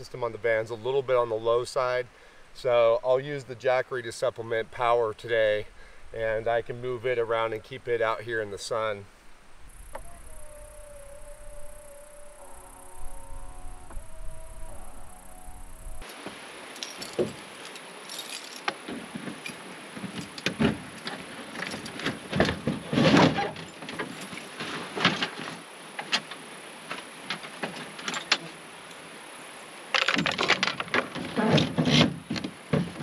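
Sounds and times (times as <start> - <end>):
plastic and metal knocks and rattles: 30.1 - 33.0.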